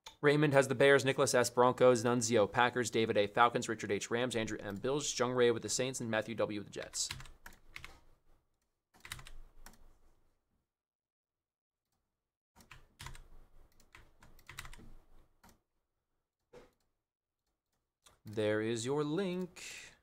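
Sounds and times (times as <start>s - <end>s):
keyboard typing: 6.8s - 8.1s, 9.0s - 10.0s, 12.6s - 15.6s.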